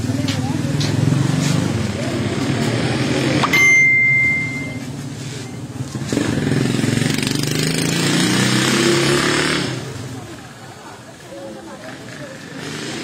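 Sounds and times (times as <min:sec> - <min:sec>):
high beep: 0:03.4 - 0:05.0.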